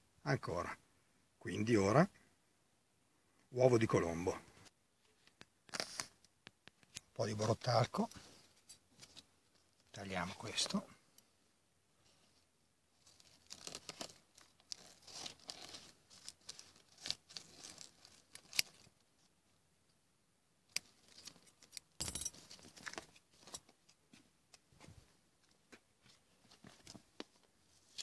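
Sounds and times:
plastic packet crinkling: 13.1 - 18.8.

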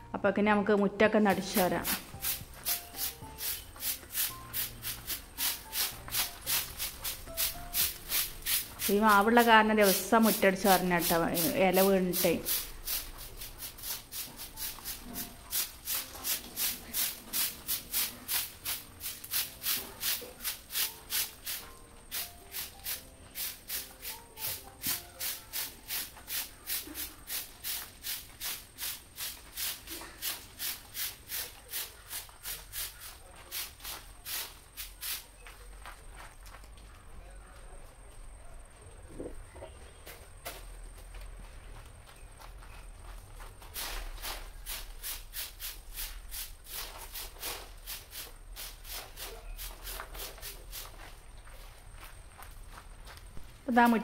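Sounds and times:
broom sweeping leaves on gravel: 1.6 - 35.5, 43.7 - 51.2.

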